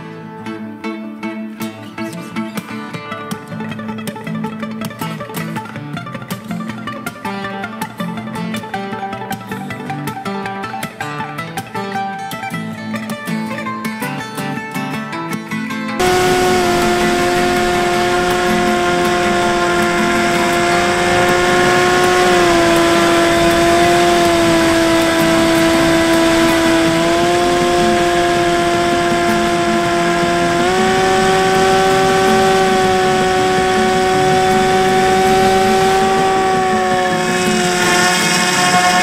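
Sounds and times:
electric motor and propeller whining: 16.0s - 39.0s.

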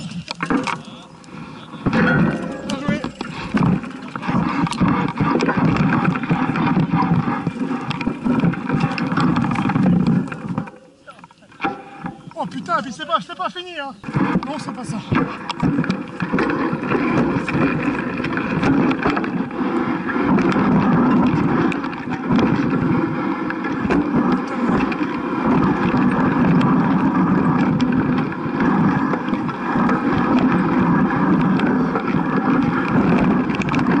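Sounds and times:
wind rush and rumble: 1.4s - 10.7s, 14.0s - 34.0s
knocks and rattles from bumps: 1.8s - 34.0s.

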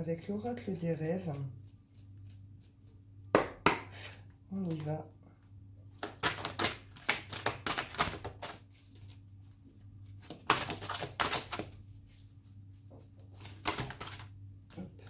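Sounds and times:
cards being shuffled: 6.0s - 9.2s, 10.1s - 11.8s, 13.3s - 14.3s.

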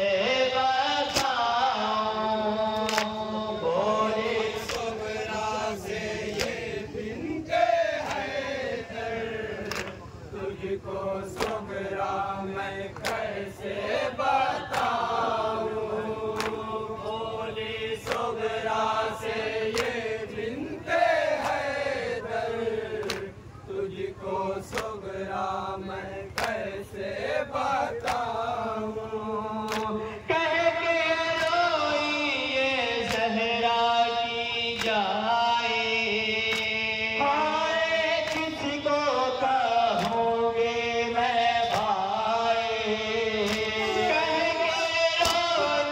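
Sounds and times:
person singing through a microphone: 0.0s - 13.0s, 27.4s - 45.9s
men chanting in unison: 0.0s - 45.9s
chest-beating slaps: 6.3s - 6.7s, 9.6s - 10.1s, 19.7s - 20.0s, 23.0s - 23.3s, 29.7s - 29.9s, 41.7s - 42.0s.

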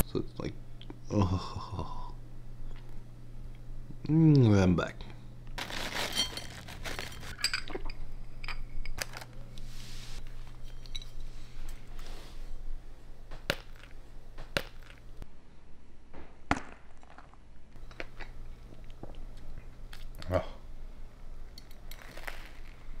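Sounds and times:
low steady hum: 0.0s - 23.0s
plastic packet rustling: 5.6s - 7.4s, 9.0s - 9.4s.

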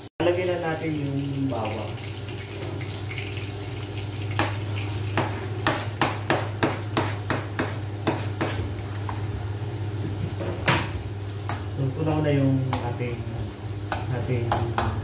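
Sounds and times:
knife scraping chopping board: 4.4s - 9.2s.

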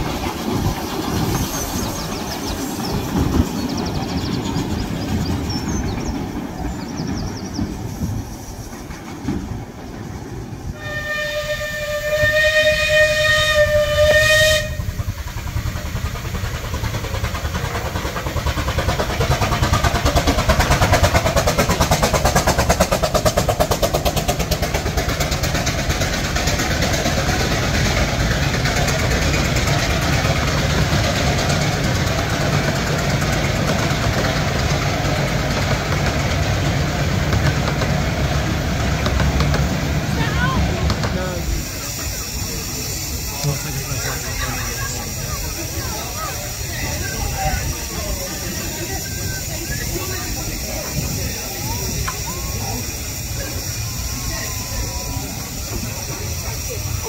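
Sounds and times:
wheels clattering over rail joints: 0.0s - 57.0s
locomotive warning note: 10.8s - 15.0s.

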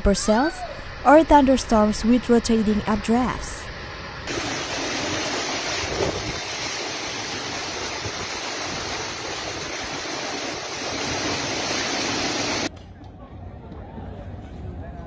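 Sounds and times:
heavy rain: 4.3s - 12.7s.

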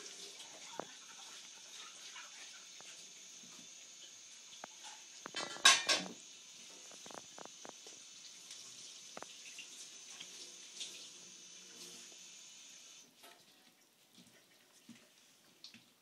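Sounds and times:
fork clattering on plate: 5.4s - 6.2s.

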